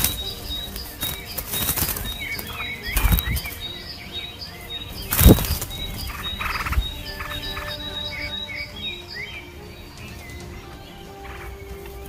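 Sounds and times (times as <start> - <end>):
bird wings flapping: 0.0 - 3.8, 4.9 - 7.8.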